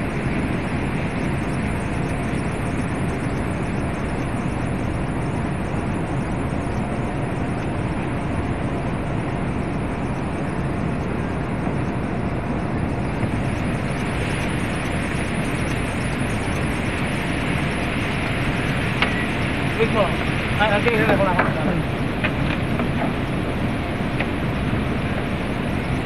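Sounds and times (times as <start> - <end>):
cooling tower fan and falling water: 0.0 - 26.0
faint machine hum: 0.0 - 26.0.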